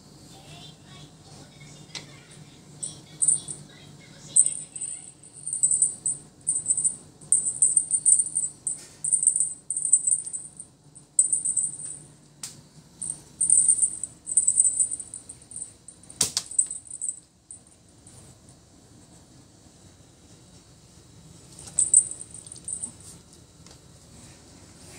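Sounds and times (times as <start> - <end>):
cat toy jingling: 2.8 - 3.6, 4.3 - 12.0, 13.0 - 17.6, 21.6 - 23.1.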